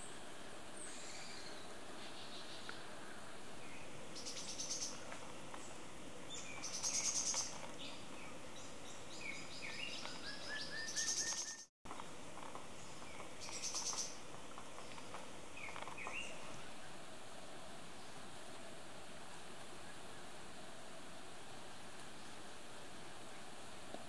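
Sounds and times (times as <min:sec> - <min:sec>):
bird lower chirps: 0:08.9 - 0:11.7
birds high-pitched rattling trills: 0:08.9 - 0:11.7, 0:12.8 - 0:14.2.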